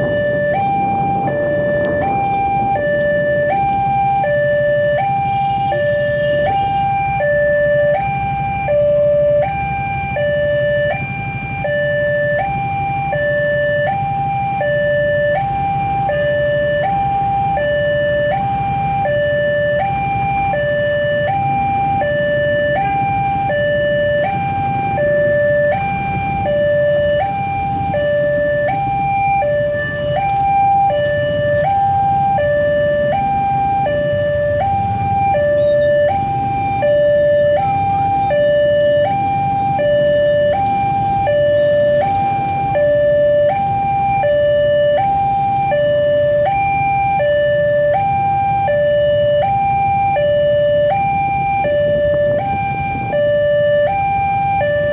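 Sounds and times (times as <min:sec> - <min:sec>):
level crossing alarm two-tone: 0:00.0 - 0:54.9.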